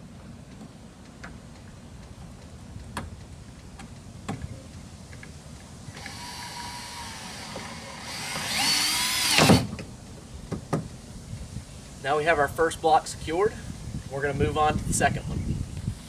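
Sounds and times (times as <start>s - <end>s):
power drill driving a screw: 5.9s - 9.7s.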